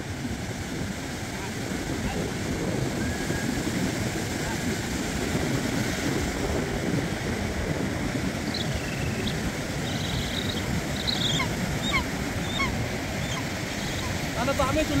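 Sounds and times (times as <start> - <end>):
sea surf washing on shore: 0.0 - 15.0
wind on microphone: 0.0 - 15.0
bird chirps and whistles: 8.5 - 14.1.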